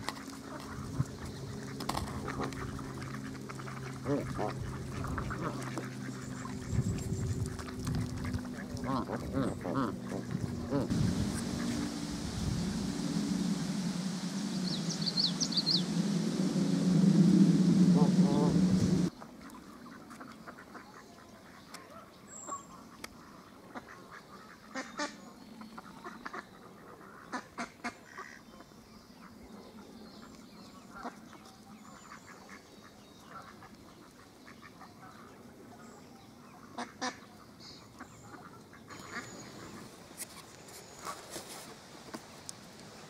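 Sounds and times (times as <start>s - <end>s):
ducks calling softly: 0.0s - 16.6s, 17.7s - 28.6s, 36.5s - 42.2s.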